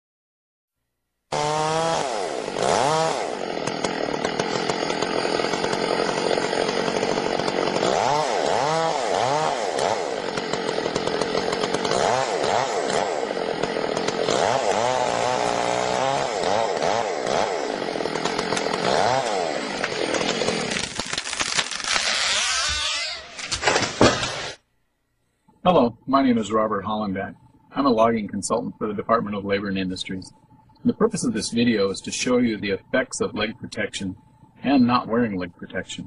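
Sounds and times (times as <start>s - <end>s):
chainsaw revving: 1.3s - 24.6s.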